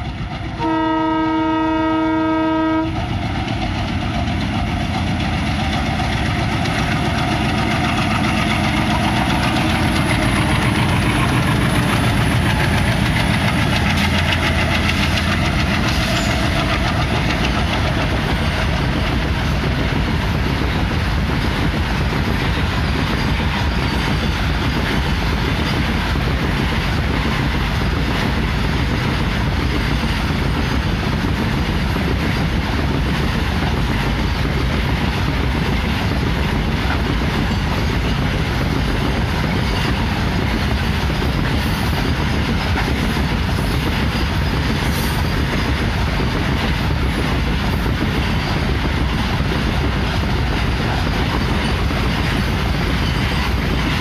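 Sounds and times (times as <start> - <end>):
freight wagons clickety-clack: 0.0 - 0.6, 2.9 - 54.0
diesel locomotive engines: 0.0 - 54.0
locomotive horn: 0.6 - 3.0.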